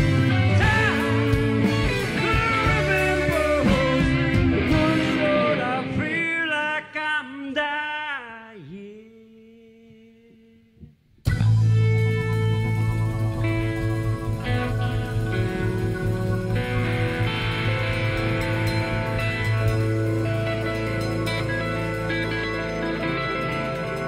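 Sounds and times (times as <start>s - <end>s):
sustained bending guitar notes: 0.0s - 6.2s, 11.3s - 24.0s
live rock band playing: 0.0s - 6.3s, 11.3s - 24.0s.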